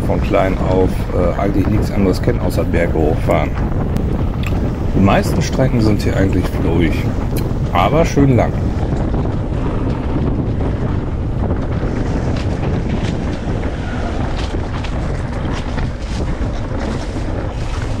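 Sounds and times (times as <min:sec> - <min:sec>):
wind buffeting microphone: 0:00.0 - 0:18.0
bike clicks and rattles: 0:03.4 - 0:05.0, 0:08.6 - 0:18.0.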